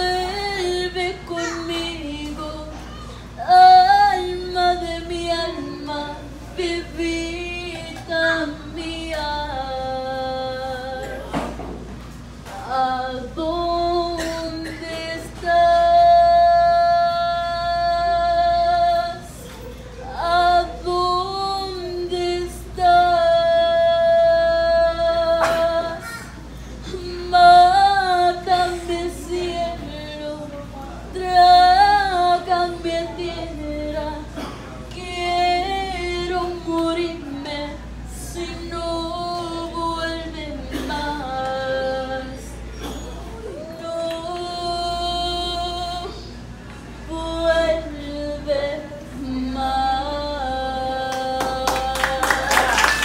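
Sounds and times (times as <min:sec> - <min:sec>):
girl singing: 0:00.0 - 0:11.5, 0:12.5 - 0:42.6.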